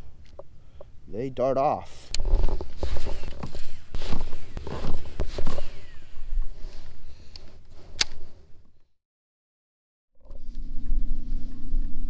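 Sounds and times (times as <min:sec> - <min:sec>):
sleeve rubbing on microphone: 0:02.2 - 0:07.0.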